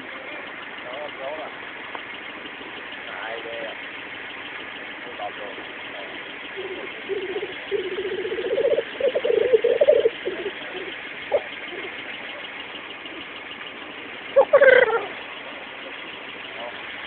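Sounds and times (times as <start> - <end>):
black grouse bubbling: 5.5 - 17.0
bird short call: 6.5 - 16.0.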